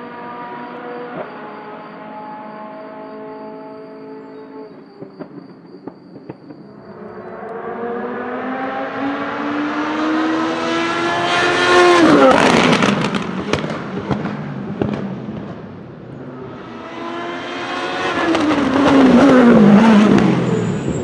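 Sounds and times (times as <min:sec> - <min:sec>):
sharp exhaust pops: 0:05.0 - 0:06.7
racing car engine passing by: 0:06.8 - 0:21.0.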